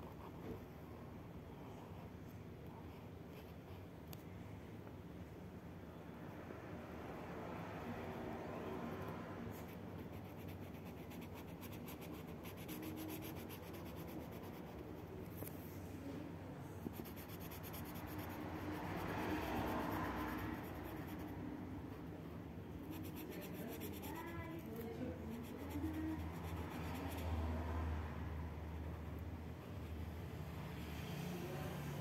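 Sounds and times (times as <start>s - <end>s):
marker rubbing on paper: 9.6s - 15.1s, 16.9s - 21.4s, 22.8s - 27.3s.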